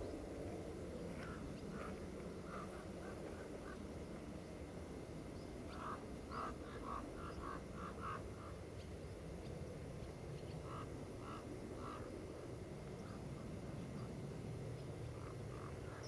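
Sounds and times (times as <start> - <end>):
wind rumbling on microphone: 0.0 - 16.0
repeated animal calls: 5.7 - 8.6, 10.6 - 12.1.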